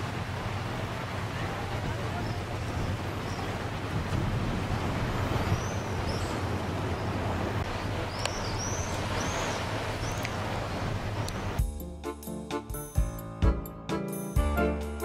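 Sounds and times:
boat engine running: 0:00.0 - 0:11.8
water noise: 0:00.0 - 0:13.1
wind noise: 0:01.7 - 0:06.3
bird chirping: 0:05.5 - 0:07.1, 0:08.1 - 0:10.4.

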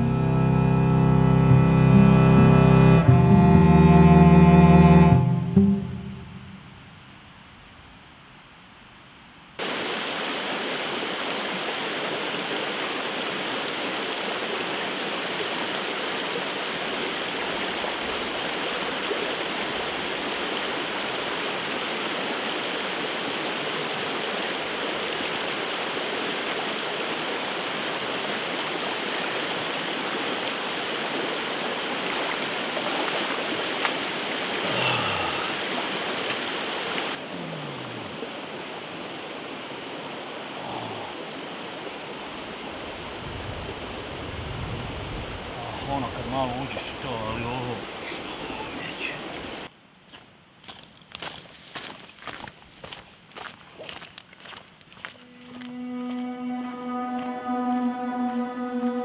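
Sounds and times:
stream flowing over stones: 0:09.6 - 0:44.6, 0:45.3 - 0:49.7.

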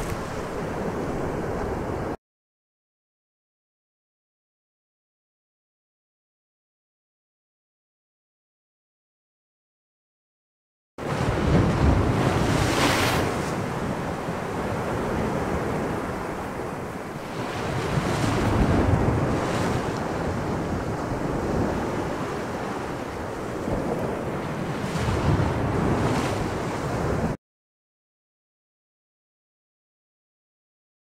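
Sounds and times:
ocean waves: 0:00.0 - 0:02.2, 0:11.0 - 0:27.4
wind: 0:00.0 - 0:02.2, 0:11.0 - 0:27.4.

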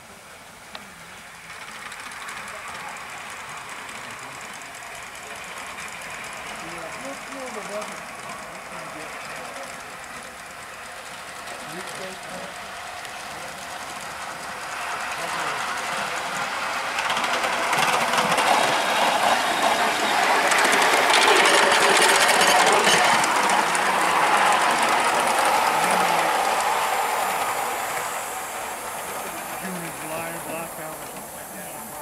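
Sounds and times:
wheels clicking on rails: 0:00.6 - 0:32.0
steam exhaust hissing: 0:02.0 - 0:32.0.

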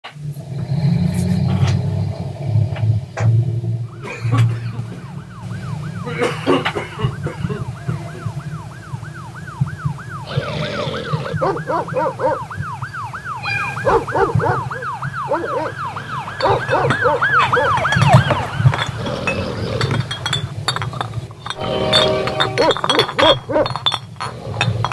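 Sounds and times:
warbling electronic siren tone: 0:03.4 - 0:19.4
clicks and clinks: 0:16.4 - 0:24.9.

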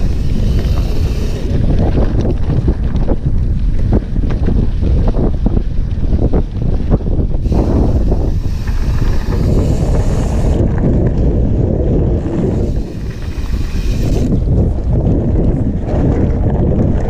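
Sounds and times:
high hiss: 0:00.0 - 0:01.5, 0:07.4 - 0:10.6, 0:12.3 - 0:14.4
wind buffeting microphone: 0:00.0 - 0:17.0.

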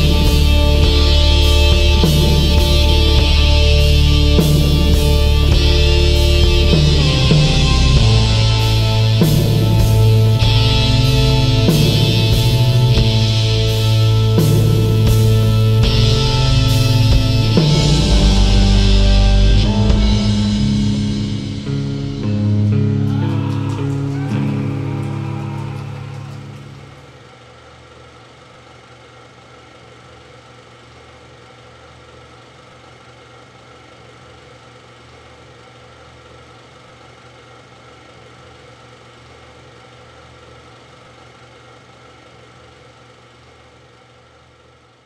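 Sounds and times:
doom metal music: 0:00.0 - 0:27.0
low hum of held tones: 0:00.0 - 0:45.0.

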